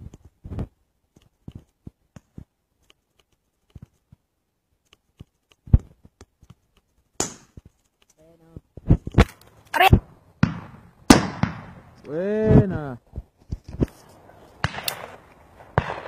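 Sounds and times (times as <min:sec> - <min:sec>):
faint pops and clicks: 0:04.8 - 0:09.5
shotgun shots: 0:07.2 - 0:07.5, 0:09.2 - 0:12.0, 0:14.6 - 0:16.0.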